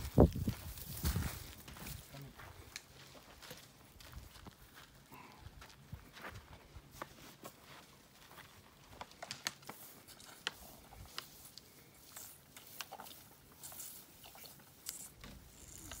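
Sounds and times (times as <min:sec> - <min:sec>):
elephant drinking from bottle: 0:11.9 - 0:16.0.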